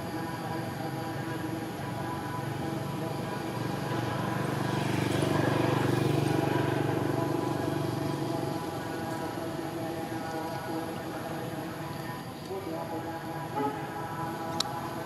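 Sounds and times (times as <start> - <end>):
vehicle engine passing by: 2.7 - 10.6.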